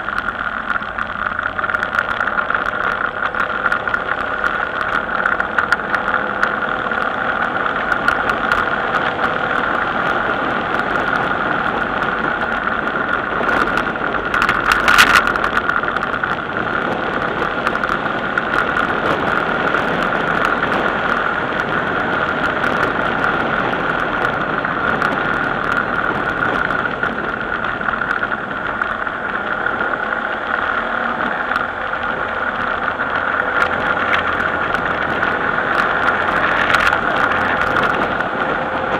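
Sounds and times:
vehicle engine running: 0.0s - 38.9s.

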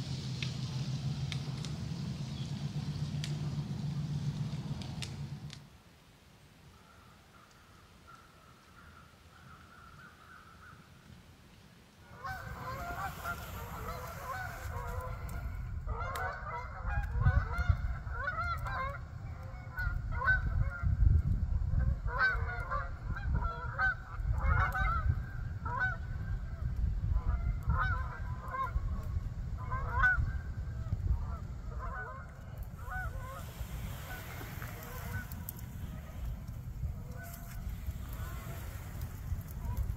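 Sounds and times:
geese honking: 12.0s - 20.8s, 22.0s - 26.2s, 27.2s - 29.0s, 29.6s - 39.9s
wind on microphone: 12.1s - 39.9s.

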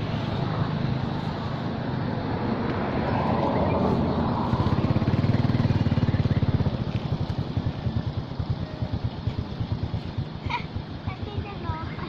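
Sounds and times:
small engine idling: 3.7s - 12.0s.

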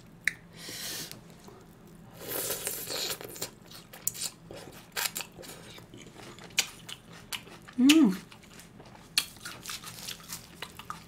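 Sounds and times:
crunchy bites and chewing: 2.6s - 11.0s.

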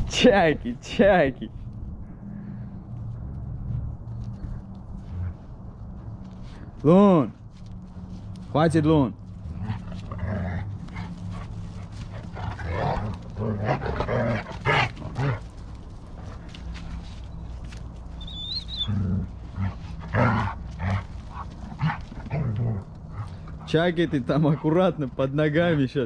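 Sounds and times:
animals growling and yelping: 9.4s - 17.1s, 18.1s - 25.0s
dog whining: 18.2s - 19.2s.

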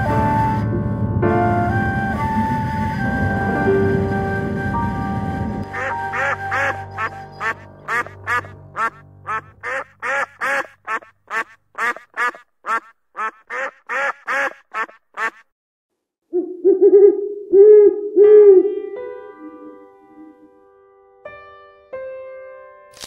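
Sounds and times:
background music: 0.0s - 10.8s, 18.3s - 23.0s
ducks calling: 5.6s - 15.4s.

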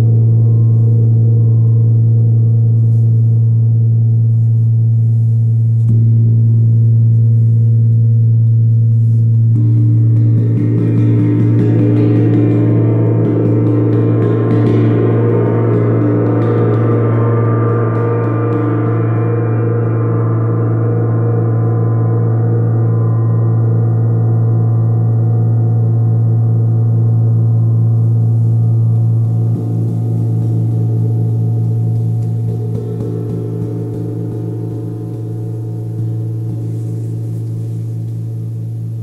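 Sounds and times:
gong ringing: 28.9s - 38.8s.

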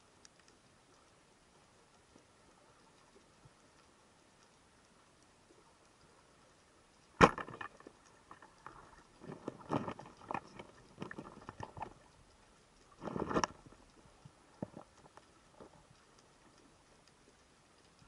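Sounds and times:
spear knocking on rocks: 7.2s - 7.8s
speargun firing underwater: 7.2s - 7.8s.

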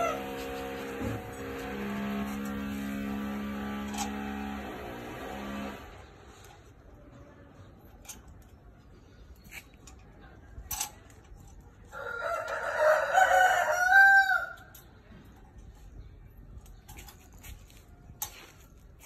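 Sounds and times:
rooster crowing: 0.0s - 0.4s, 11.9s - 14.7s.

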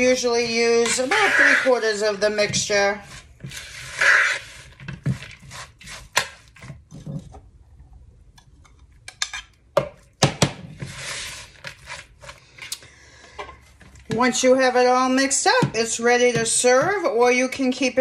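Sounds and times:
spatula stirring in plastic bowl: 0.1s - 7.2s.

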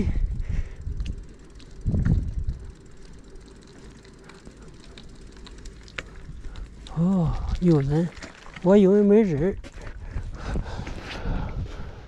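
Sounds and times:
wind rumbling on microphone: 0.0s - 3.4s, 9.3s - 12.0s
bicycle rolling on concrete: 0.0s - 12.0s.

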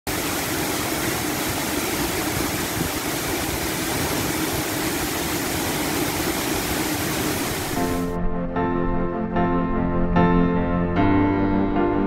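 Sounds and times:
waterfall roar: 0.1s - 8.1s
white-water stream: 0.1s - 8.1s.

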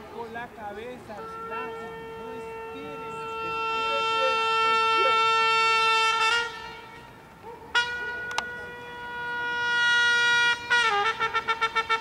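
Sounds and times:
trumpet playing: 1.1s - 12.0s.

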